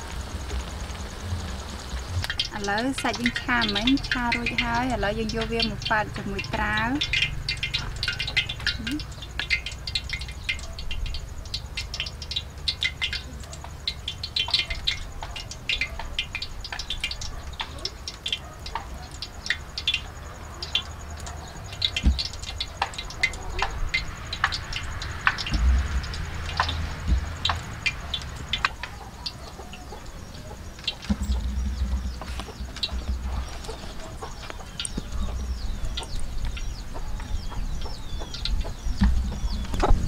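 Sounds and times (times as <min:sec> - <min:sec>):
steady low rumble: 0:00.0 - 0:11.7, 0:21.6 - 0:29.4, 0:30.0 - 0:40.0.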